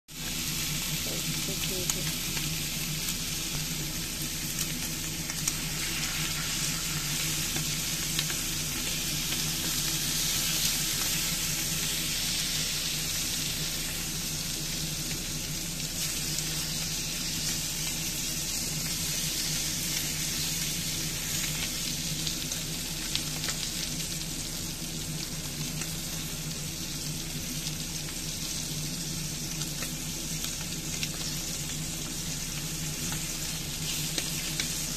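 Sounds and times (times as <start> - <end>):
steak sizzling in a skillet: 0.1 - 34.9.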